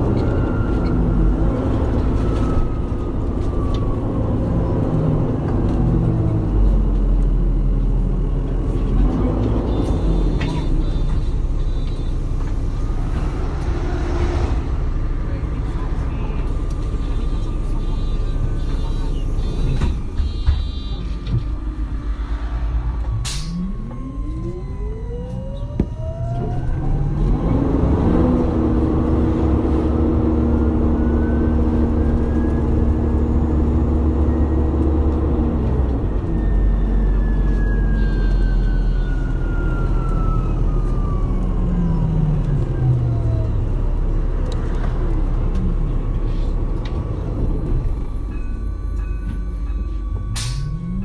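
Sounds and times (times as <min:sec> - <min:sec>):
bus engine hum: 0:00.0 - 0:51.0
electric bus drive whine: 0:00.0 - 0:51.0
low rumble: 0:12.2 - 0:17.0, 0:21.0 - 0:28.4.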